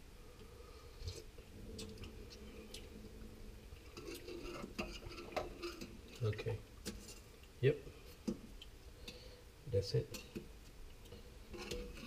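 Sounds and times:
faint steady hum: 0.0s - 12.0s
metal spoon stirring in saucepan: 3.6s - 7.4s, 11.1s - 12.0s.

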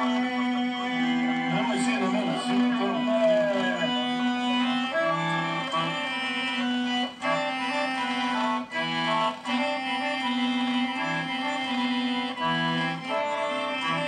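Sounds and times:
accordion through television speaker: 0.0s - 14.0s.

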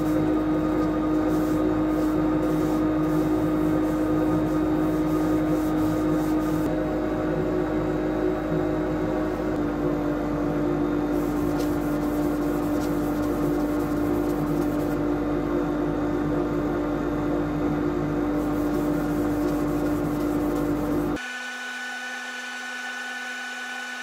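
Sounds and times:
workshop machinery humming: 0.0s - 24.0s.

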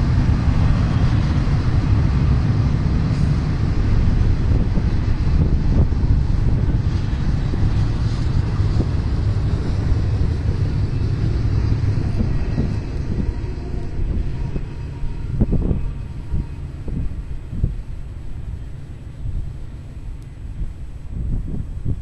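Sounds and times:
freight train rumbling past: 0.0s - 22.0s
faint rail clicks: 20.1s - 20.4s.

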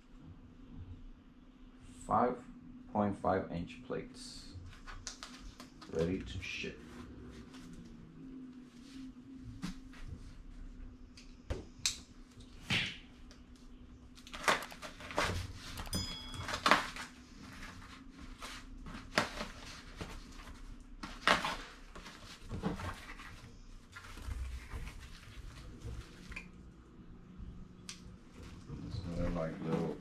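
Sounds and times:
faint low hum: 0.0s - 30.0s
packaging rustling and scraping: 14.2s - 26.3s
plate clinking: 15.9s - 17.0s.

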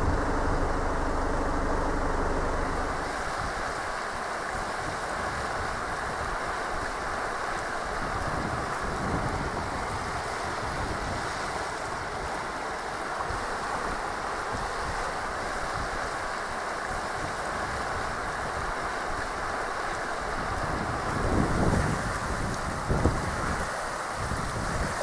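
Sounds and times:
flooded river rushing: 0.0s - 25.0s
wind buffeting microphone: 7.9s - 12.5s, 20.2s - 25.0s.

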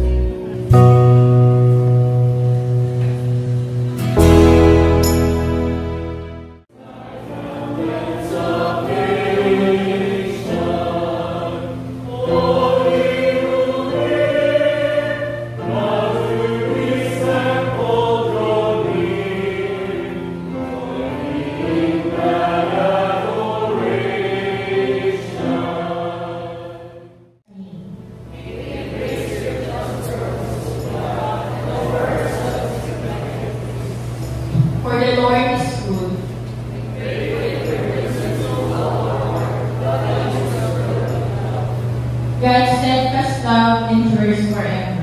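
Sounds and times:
held chord: 0.0s - 26.4s, 27.9s - 45.0s
choir singing a slow song: 6.7s - 45.0s.

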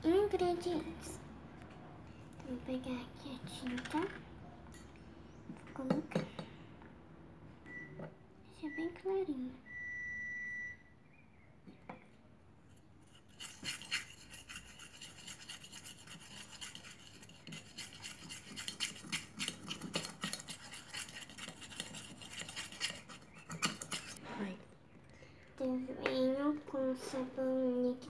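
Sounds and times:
steady beep: 9.6s - 10.9s
plastic spoon scraping metal pot: 13.0s - 24.2s.

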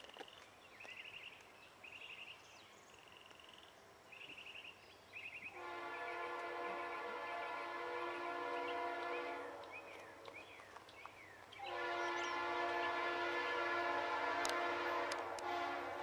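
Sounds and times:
locomotive air horn blasts: 5.6s - 9.9s, 11.6s - 16.0s.

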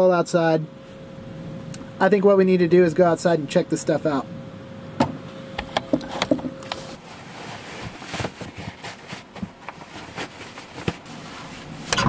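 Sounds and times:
faint steady hum: 0.0s - 12.0s
jacket rustling: 6.8s - 12.0s.

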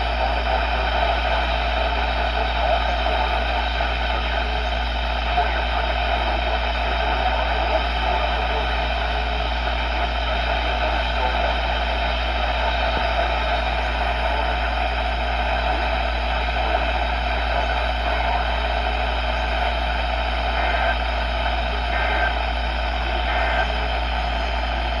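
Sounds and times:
radio static hiss: 0.0s - 25.0s.

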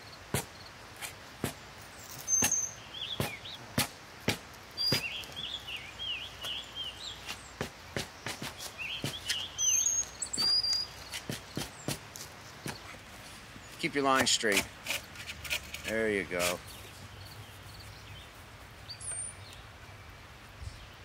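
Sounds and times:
songbirds chirping: 0.0s - 21.0s
spade chopping into soil: 0.3s - 1.6s, 2.2s - 5.2s, 7.6s - 9.4s, 10.3s - 12.8s.

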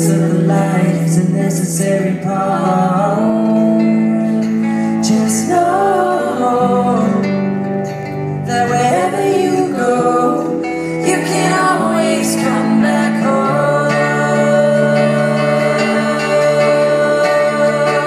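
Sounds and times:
acoustic guitar: 0.0s - 18.0s
cello: 0.0s - 18.0s
keyboard: 0.0s - 18.0s
person singing long notes: 8.4s - 18.0s.

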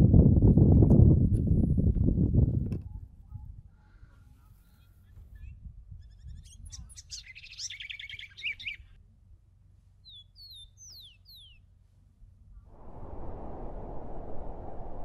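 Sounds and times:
small birds twittering: 4.7s - 8.9s
low steady rumble: 12.6s - 15.0s.

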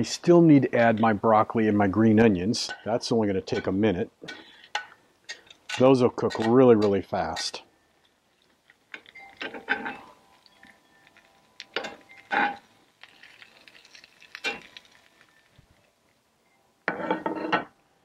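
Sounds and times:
metal tongs clinking in skillet: 2.6s - 2.9s, 3.5s - 7.6s, 8.9s - 15.4s.

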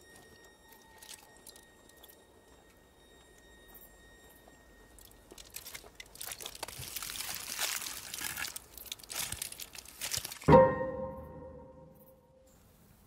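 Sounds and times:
aluminium foil crinkling: 0.0s - 2.2s, 4.9s - 10.5s
loud hit with ringing tone: 10.5s - 12.5s.

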